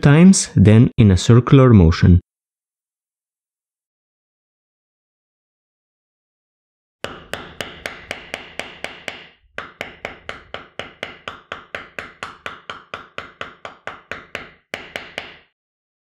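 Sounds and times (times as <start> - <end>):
mallet tapping metal tool: 7.0 - 15.5.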